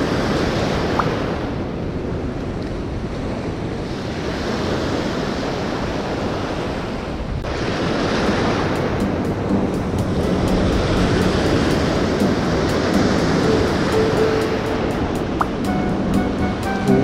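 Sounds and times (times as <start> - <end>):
small waves breaking in surf: 0.0 - 9.1
wind buffeting microphone: 0.0 - 17.0.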